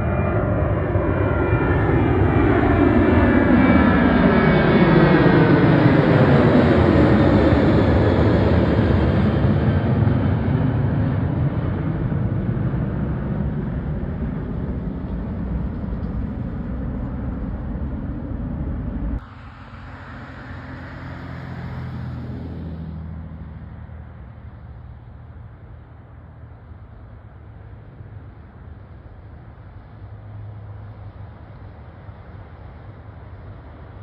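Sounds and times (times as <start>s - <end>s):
distant low rumble: 0.0s - 33.9s
jet engine rumble overhead: 0.0s - 34.0s.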